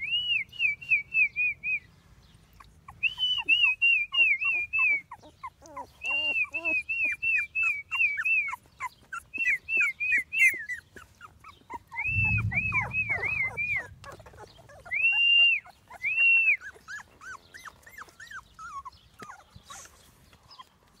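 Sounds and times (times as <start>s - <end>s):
puppies whimpering and squealing: 2.5s - 21.0s
low rumble: 12.0s - 15.1s.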